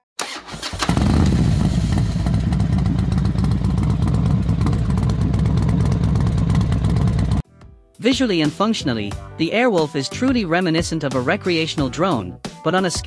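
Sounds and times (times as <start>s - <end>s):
motorcycle engine running: 0.7s - 7.4s.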